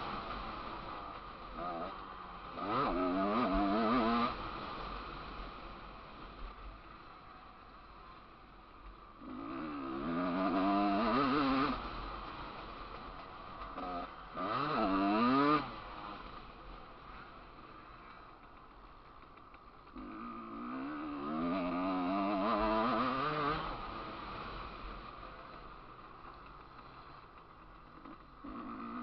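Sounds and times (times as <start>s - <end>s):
dirt bike engine revving: 0.0s - 4.6s, 9.2s - 18.7s, 19.8s - 29.0s.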